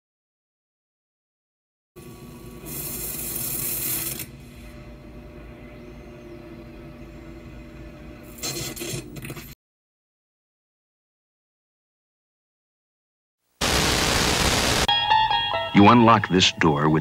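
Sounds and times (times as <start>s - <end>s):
loud static hiss: 13.5s - 14.9s.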